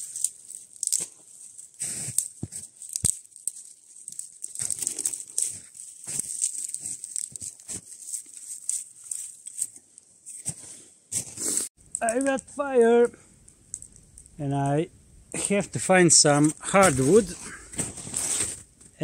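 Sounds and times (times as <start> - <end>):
fire crackling and popping: 0.0 - 10.5, 11.3 - 19.0
steady hiss: 11.6 - 17.5.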